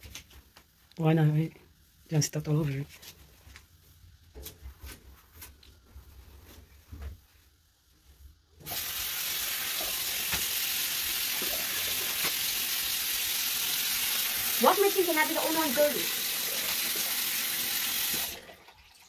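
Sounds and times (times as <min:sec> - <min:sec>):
tap water gushing: 0:08.6 - 0:19.0.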